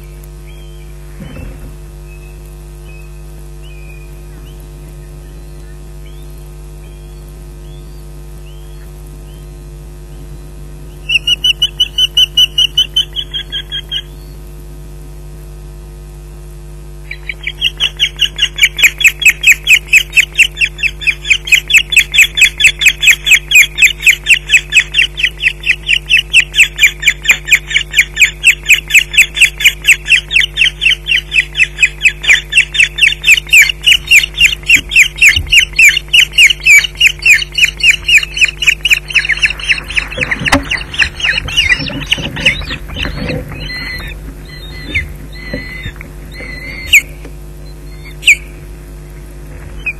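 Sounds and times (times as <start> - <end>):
osprey alarm calls: 0.0 - 14.4, 17.0 - 49.9
wings flapping and scuffling: 31.3 - 47.3.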